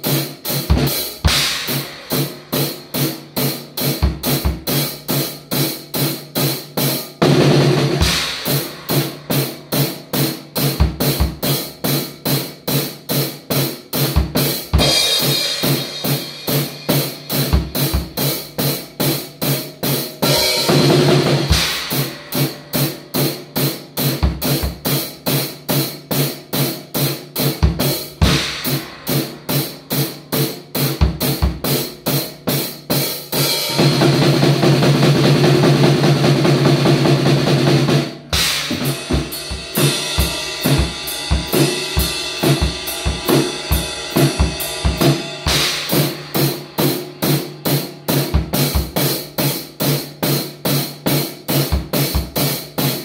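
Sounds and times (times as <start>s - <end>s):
drum kit rock beat: 0.0s - 53.0s
cymbal crashes: 38.4s - 47.8s.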